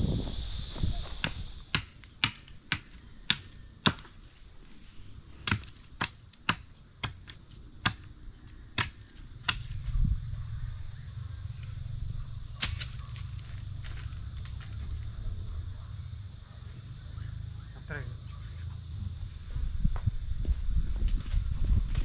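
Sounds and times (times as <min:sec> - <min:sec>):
low steady rumble: 0:09.8 - 0:20.8.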